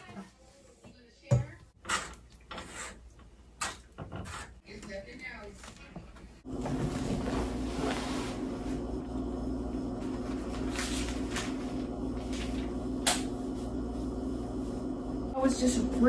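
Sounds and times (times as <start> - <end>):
steady low hum: 6.4 - 16.0.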